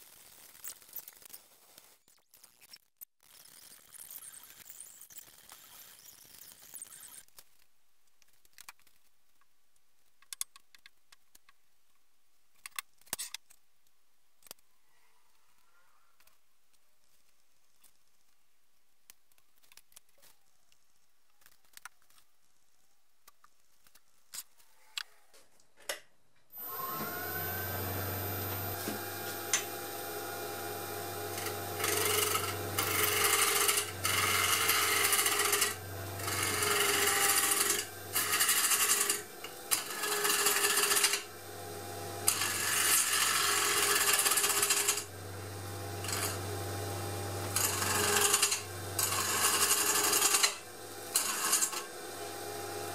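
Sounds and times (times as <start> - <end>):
wood lathe humming: 26.6 - 52.9
gouge scraping spinning wood: 26.7 - 52.9.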